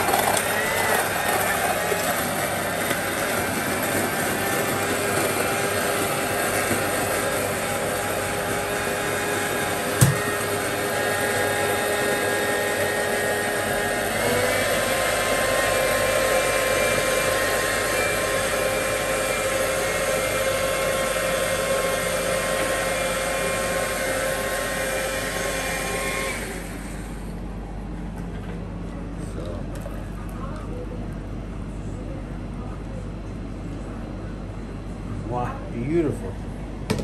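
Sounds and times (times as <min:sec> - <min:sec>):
blender motor running: 0:00.0 - 0:27.4.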